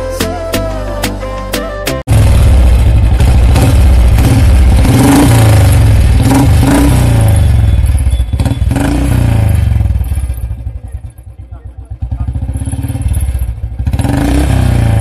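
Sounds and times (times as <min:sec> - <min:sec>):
motorcycle engine revving: 0:02.1 - 0:15.0.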